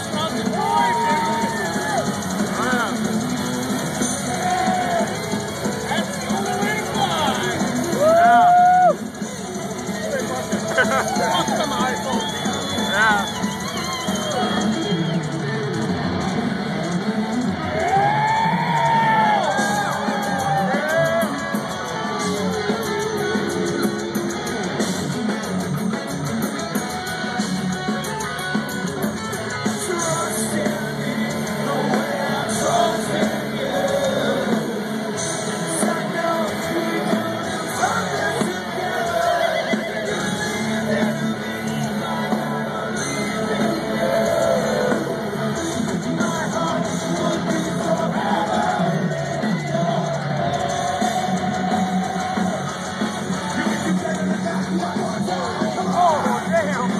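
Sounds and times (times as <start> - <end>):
live metal band playing: 0.0 - 56.9
sung and yelled vocals: 4.0 - 9.0, 29.6 - 56.9.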